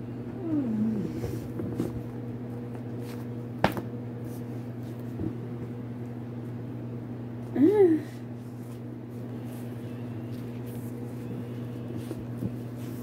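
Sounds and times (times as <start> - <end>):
steady low hum: 0.0 - 13.0
book handling rustles and knocks: 2.7 - 5.4, 11.9 - 13.0.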